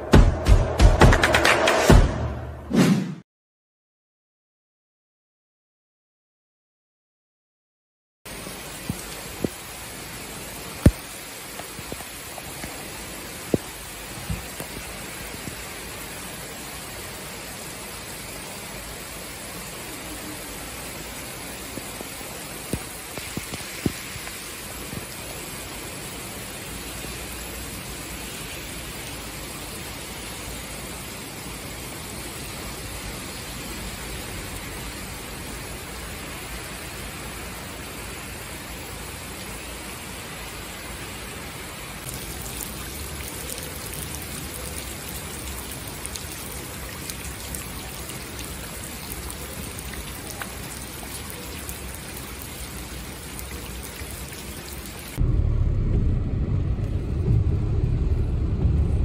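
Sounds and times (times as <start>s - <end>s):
rain splashing on floodwater: 8.3s - 55.2s
heavy rain pouring: 8.3s - 59.0s.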